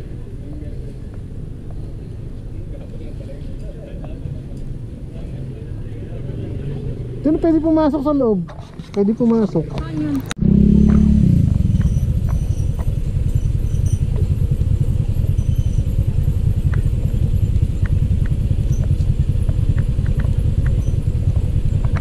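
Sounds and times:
motorcycle engine running: 0:09.8 - 0:22.0.

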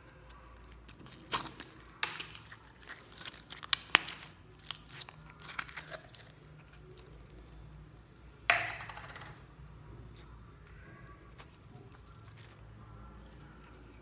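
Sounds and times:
plastic film crinkling: 0:00.0 - 0:07.7
sticky slime crackling and popping: 0:00.0 - 0:08.7.

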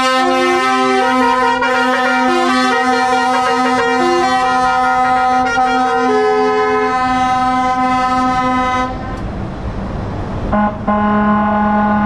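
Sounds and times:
multi-tone truck air horns: 0:00.0 - 0:09.2, 0:10.5 - 0:12.0
hiss of passing traffic: 0:03.2 - 0:12.0.

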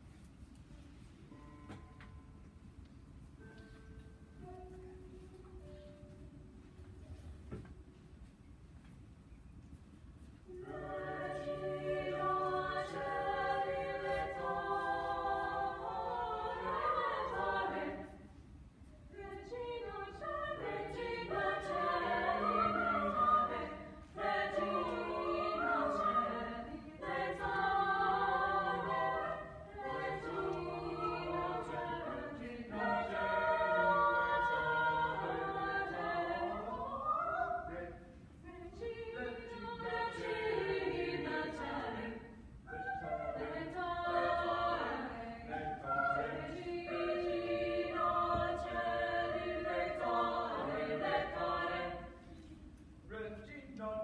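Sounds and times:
group singing a cappella: 0:10.5 - 0:18.4, 0:19.1 - 0:53.2.

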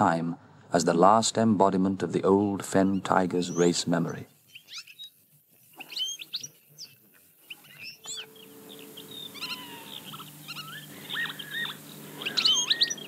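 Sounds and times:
small birds chirping: 0:02.6 - 0:13.0
lower whistled bird notes: 0:02.7 - 0:13.0
faint low drone: 0:07.6 - 0:13.0.

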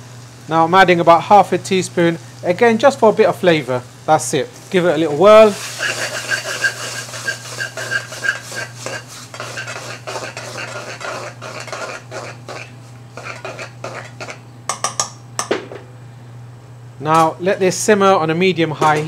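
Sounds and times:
metal spoon scraping metal pan: 0:05.5 - 0:14.4.

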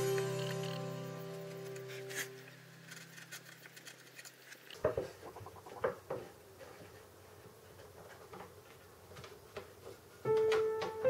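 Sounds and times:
background music: 0:00.0 - 0:03.2
chisel clicks and scrapes on wood: 0:02.0 - 0:04.8.

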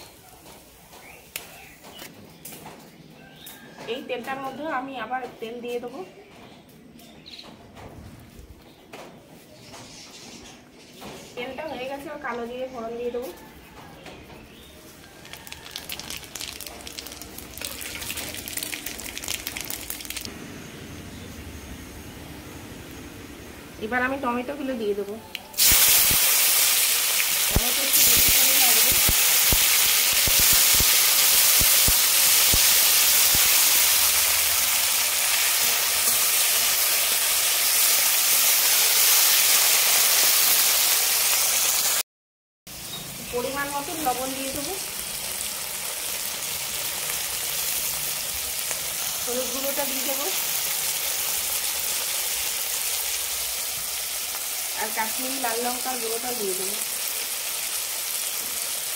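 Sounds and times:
seeds crackling in hot oil: 0:14.9 - 0:20.3, 0:24.2 - 0:42.0, 0:42.8 - 0:58.9.

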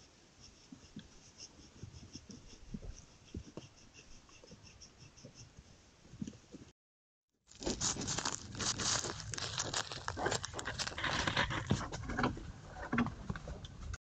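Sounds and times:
dry vegetation crackling and rustling: 0:07.5 - 0:12.1.

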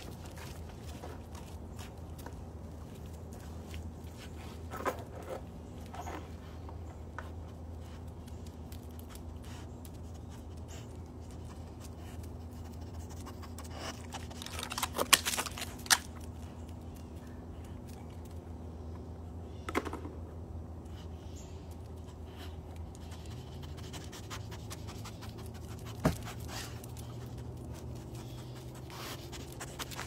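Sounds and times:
steady low hum: 0:00.0 - 0:30.0
dog claws scraping on concrete: 0:04.1 - 0:16.8, 0:21.8 - 0:30.0
loud close crackling and scraping: 0:13.1 - 0:16.5.

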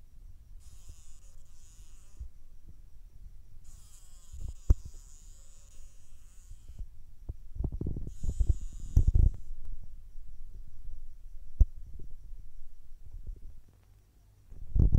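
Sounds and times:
fly buzzing wings: 0:00.6 - 0:02.7, 0:03.6 - 0:07.0, 0:07.8 - 0:09.8.

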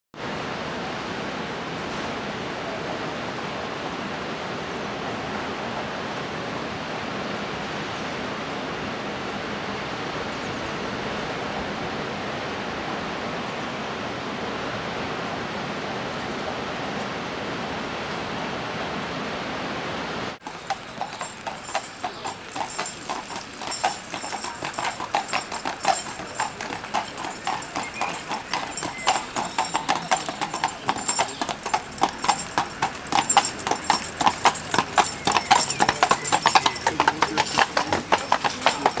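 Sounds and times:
horse hooves clip-clopping on wet road: 0:20.4 - 0:39.0.

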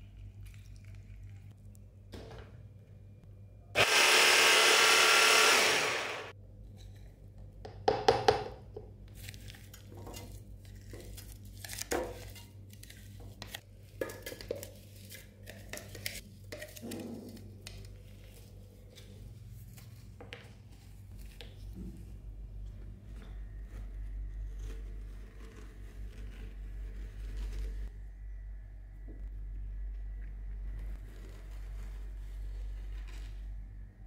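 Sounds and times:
electric blender running: 0:03.8 - 0:06.3.

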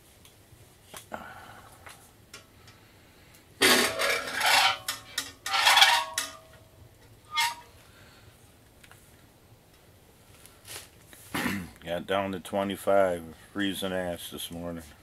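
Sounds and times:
metal clank: 0:03.6 - 0:06.6
metal objects clattering: 0:03.6 - 0:06.6.

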